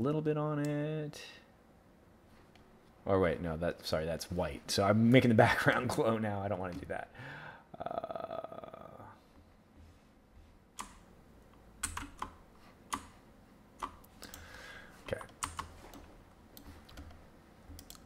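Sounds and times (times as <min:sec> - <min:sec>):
mouse and keyboard clicks: 0:15.1 - 0:18.0.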